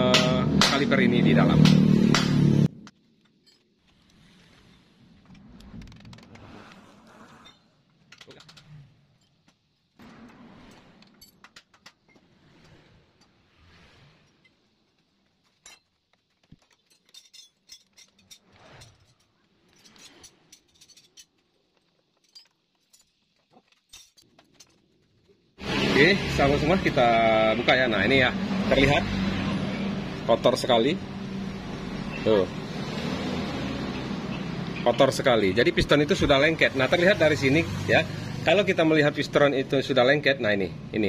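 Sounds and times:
metallic clinks and rattles: 14.2 - 25.4.

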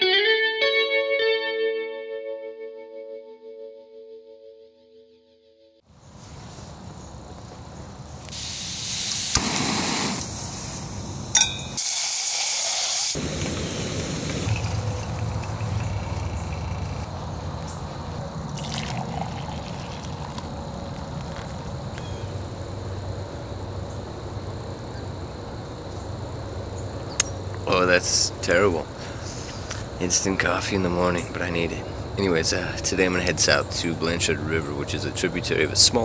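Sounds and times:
camping stove hissing: 8.2 - 17.4, 18.6 - 21.7
coffee pouring into a mug: 13.2 - 17.1, 18.5 - 21.7.

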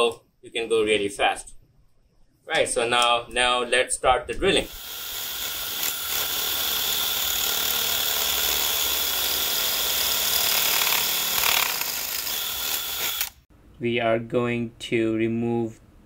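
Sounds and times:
hammer drill boring into concrete: 4.7 - 13.4.

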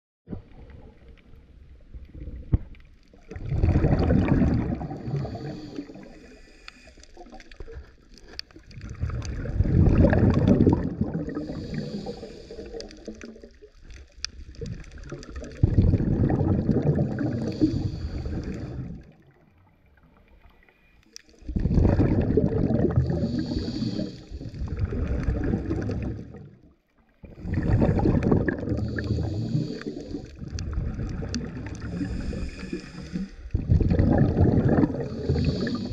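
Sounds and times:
exhaled bubbles rushing underwater: 0.3 - 35.9
regulator hissing on inhalation: 5.0 - 7.0, 11.4 - 12.9, 17.4 - 18.8, 23.1 - 24.6, 28.8 - 30.3, 31.8 - 33.4, 35.0 - 35.9.

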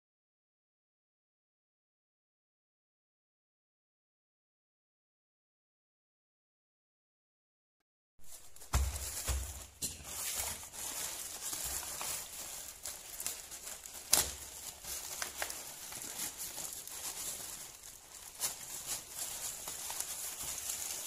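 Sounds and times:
plastic mailer bag crinkling: 8.2 - 21.0.

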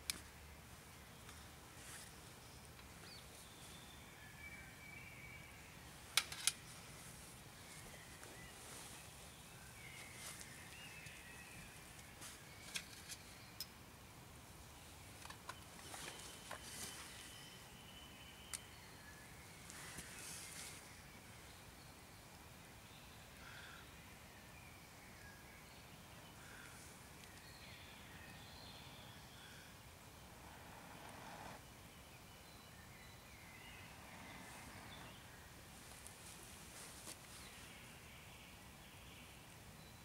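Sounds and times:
faint birdsong: 0.0 - 40.0
soft rustle: 0.1 - 4.2, 5.9 - 13.4, 15.5 - 17.8, 19.4 - 21.1, 33.8 - 38.1.

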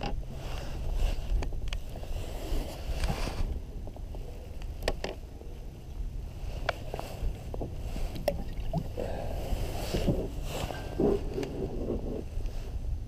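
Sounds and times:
wind buffeting microphone: 0.0 - 13.0
small waves slapping hull: 6.6 - 12.0.

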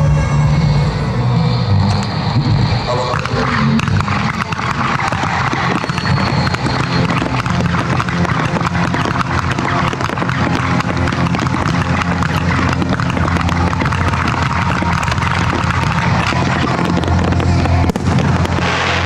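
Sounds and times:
crackle of small pops: 3.1 - 19.0
firework shells bursting: 3.1 - 19.0.

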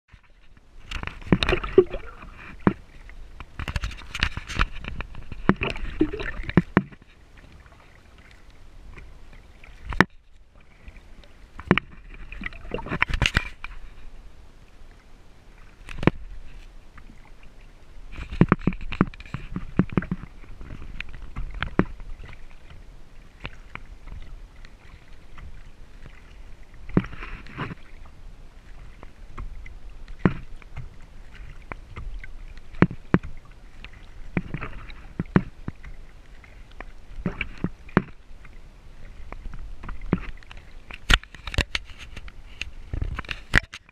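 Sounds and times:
low rumble of water: 0.1 - 43.9
paddle strokes splashing: 0.1 - 43.9.

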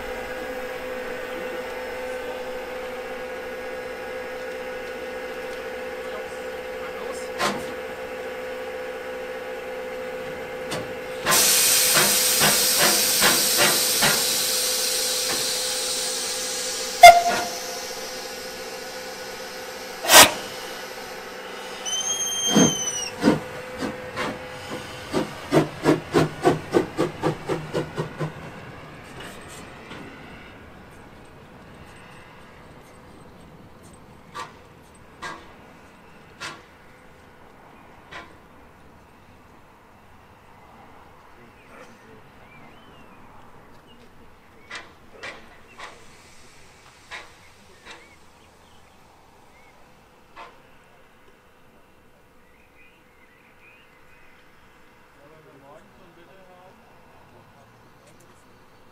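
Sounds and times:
steam exhaust chuffs: 0.0 - 36.8, 44.6 - 50.6
locomotive humming: 0.0 - 58.9
loud hiss of steam: 10.4 - 30.6, 44.6 - 50.2
short whistle blast: 17.0 - 18.0, 21.8 - 23.2.

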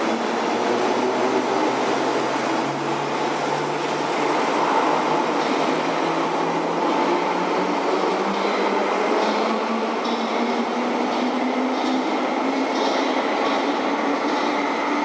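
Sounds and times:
train rumbling into tunnel: 0.0 - 15.0.

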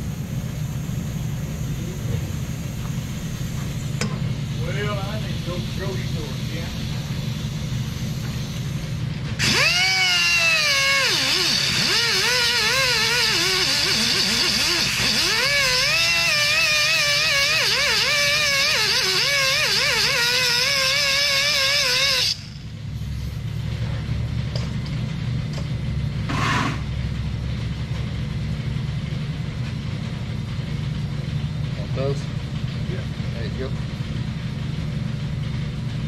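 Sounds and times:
steady air hiss: 0.0 - 9.1
air cutoff wheel whining: 0.0 - 36.0.

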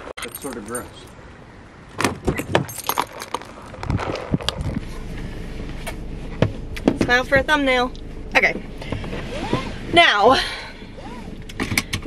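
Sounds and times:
car engine low rumble: 0.0 - 12.0
keys jangling: 0.2 - 1.1, 2.3 - 3.5.

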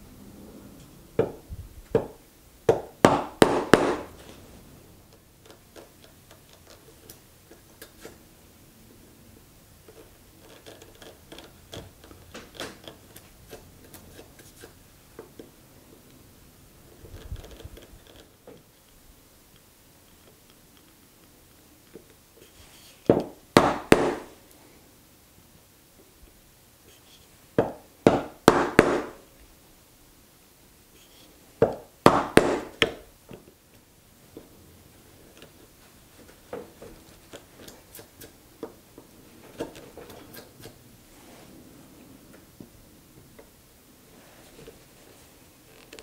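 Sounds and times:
mallet striking chisel: 23.1 - 24.3.

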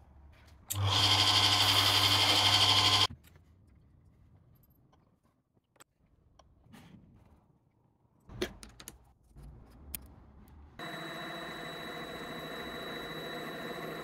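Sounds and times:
lathe running hum and whine: 0.8 - 3.1, 10.8 - 14.0.

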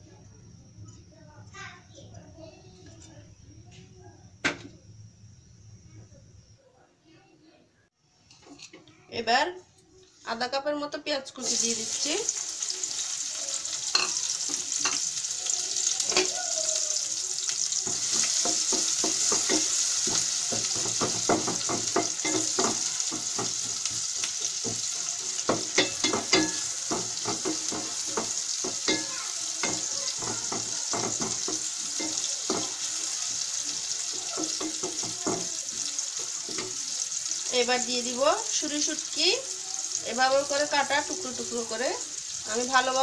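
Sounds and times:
onions sizzling in oil: 10.2 - 43.0.

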